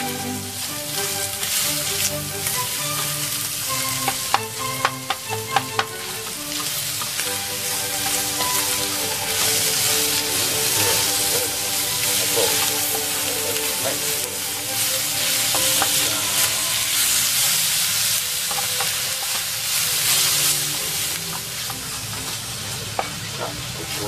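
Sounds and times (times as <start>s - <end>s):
food sizzling in a frying pan: 0.0s - 24.0s
spatula scraping and tapping pan: 1.1s - 14.4s, 18.4s - 19.6s.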